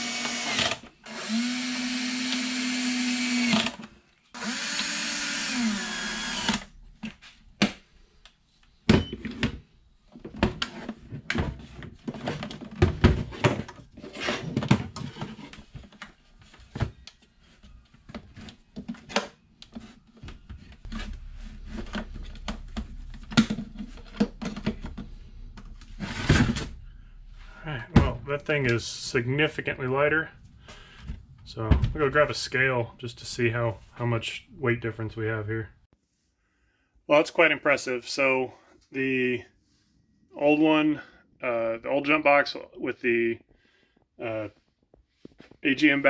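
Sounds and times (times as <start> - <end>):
cordless drill driving screw: 0.0 - 6.7.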